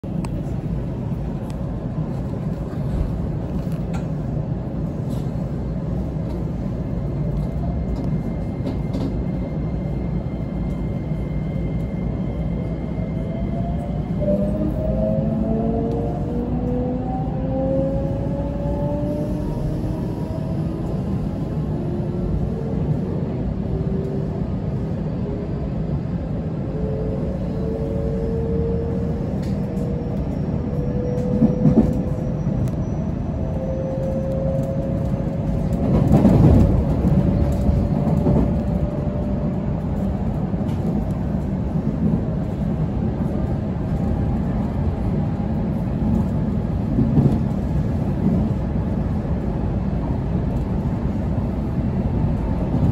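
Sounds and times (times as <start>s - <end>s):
train wheels rumbling on rails: 0.0s - 52.9s
train clattering: 33.9s - 49.0s.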